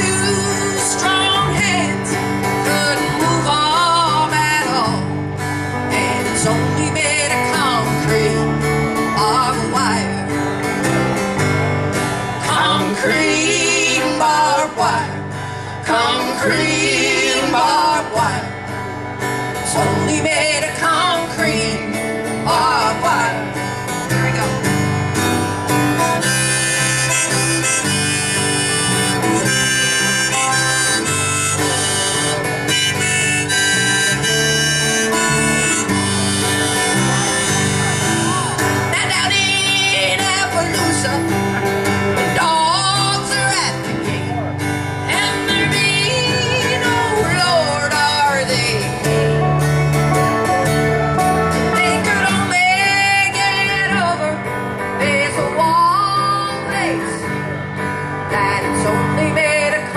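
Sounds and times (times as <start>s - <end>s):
strummed acoustic guitars: 0.0s - 59.9s
wavering lead melody: 21.9s - 54.5s.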